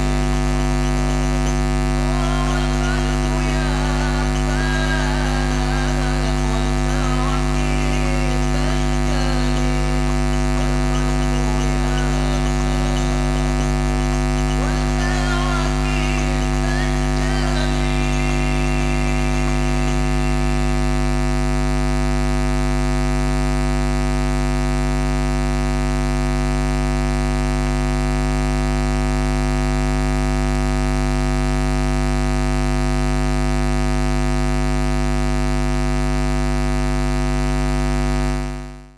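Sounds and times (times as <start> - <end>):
mains hum and buzz: 0.0 - 38.9.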